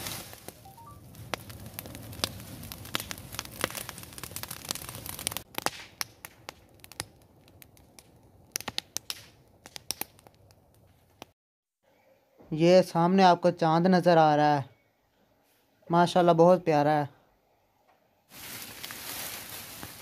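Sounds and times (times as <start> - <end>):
rush of flame: 0.0 - 9.3
dry leaves crackling and popping: 0.0 - 10.4, 18.3 - 20.0.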